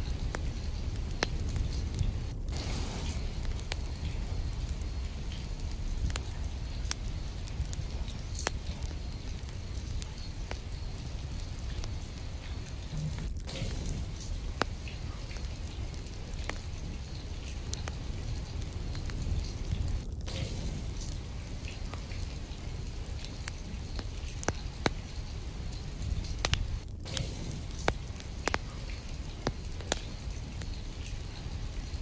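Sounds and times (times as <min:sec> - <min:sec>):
low rumble: 0:00.0 - 0:08.2, 0:12.7 - 0:16.9, 0:17.8 - 0:23.2, 0:26.0 - 0:29.5
raindrop ticks: 0:00.0 - 0:32.0
steady rain hiss: 0:00.0 - 0:32.0.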